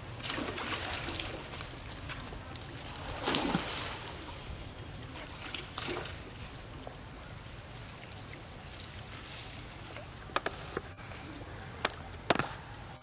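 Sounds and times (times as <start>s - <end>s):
water sloshing and splashing: 0.0s - 13.0s.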